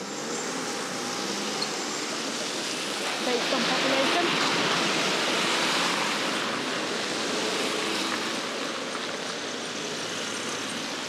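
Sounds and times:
tyres hissing on wet road: 0.0s - 11.0s.

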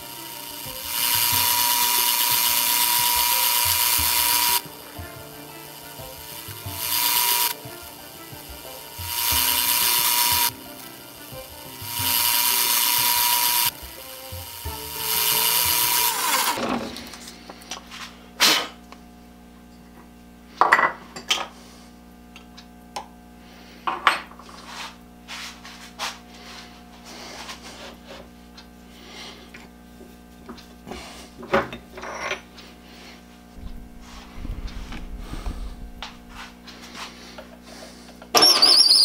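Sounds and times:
drill bit cutting wood: 0.0s - 16.7s
lathe running: 0.0s - 18.1s, 32.1s - 37.6s
low hum: 32.8s - 37.4s.

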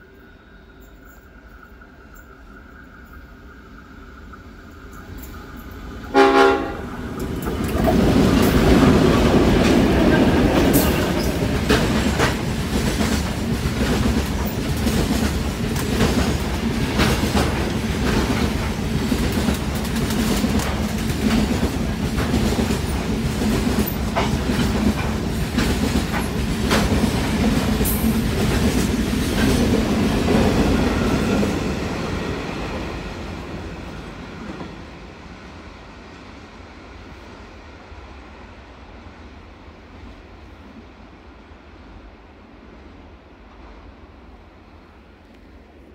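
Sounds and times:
train wheels clickety-clack: 4.6s - 35.5s
train horn blast: 6.1s - 7.0s.

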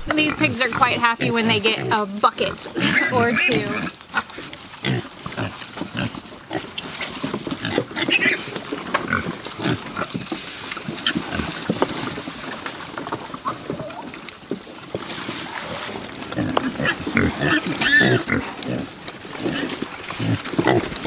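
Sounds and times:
pigs grunting: 0.0s - 14.3s, 14.9s - 21.0s
high-pitched pig calls: 0.1s - 10.2s, 15.3s - 21.0s.

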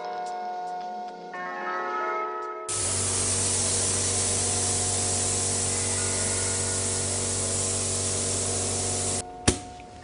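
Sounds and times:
low motor hum: 2.7s - 9.2s
spray gun hissing: 2.7s - 9.2s.

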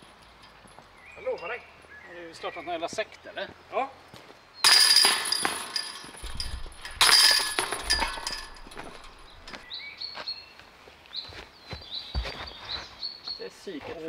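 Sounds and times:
disc golf chains crashing: 4.6s - 9.6s.

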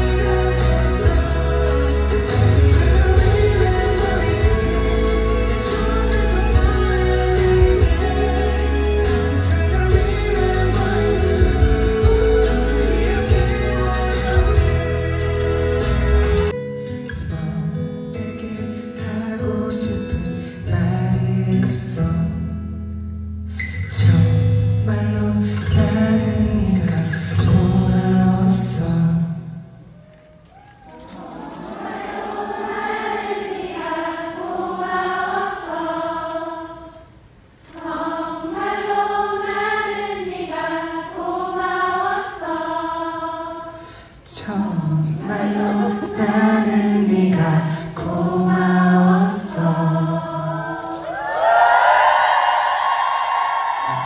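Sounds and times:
choir singing in unison: 0.0s - 16.6s, 31.0s - 54.0s
man singing into microphone: 0.0s - 22.7s, 23.8s - 29.8s, 44.2s - 50.4s
acoustic guitar: 0.0s - 33.7s.

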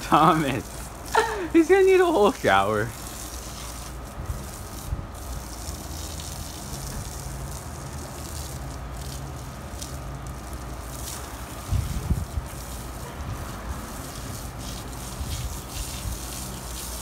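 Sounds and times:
hose spraying water: 0.0s - 17.0s
wind on microphone: 11.6s - 12.5s.

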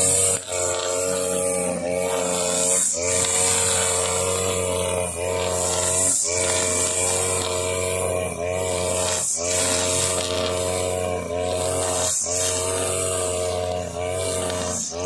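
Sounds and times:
brush cutter engine running: 0.0s - 15.0s
trimmer line whirring through grass: 0.0s - 15.0s.

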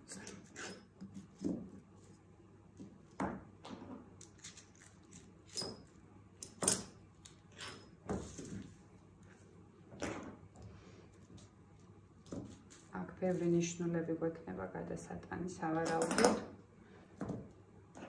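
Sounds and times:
light clinks and knocks: 15.8s - 16.5s.

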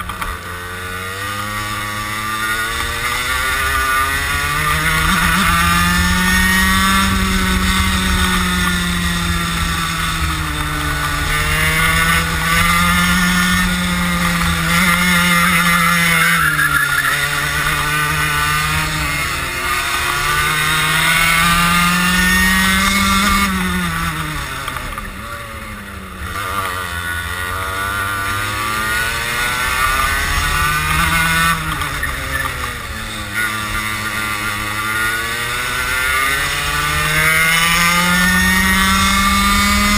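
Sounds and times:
kart engine at full throttle: 0.0s - 39.9s.

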